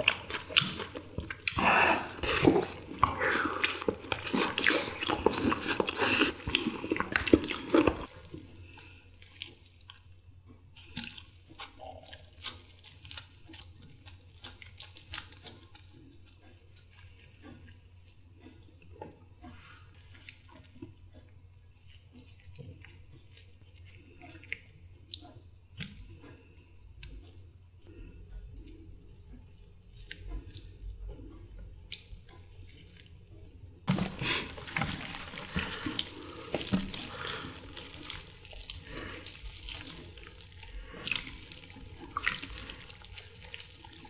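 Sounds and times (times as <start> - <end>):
wet squishes of meat tearing: 0.0 - 10.0, 10.8 - 17.3, 31.5 - 44.0
loud chewing and smacking: 0.0 - 44.0.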